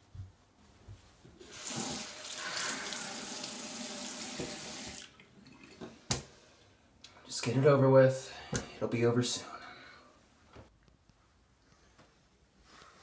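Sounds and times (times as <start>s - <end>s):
tap running into a sink: 4.3s - 5.0s.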